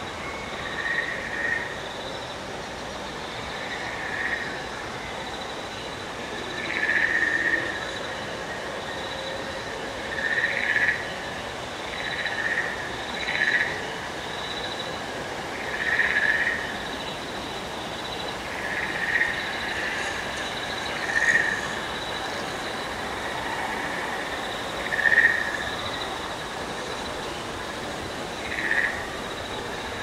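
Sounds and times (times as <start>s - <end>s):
high insect-like hum: 0.0s - 30.0s
frog croaking chirps: 3.5s - 4.6s, 6.4s - 8.0s, 10.1s - 11.1s, 11.9s - 13.9s, 15.5s - 17.1s, 18.0s - 27.1s, 28.3s - 30.0s.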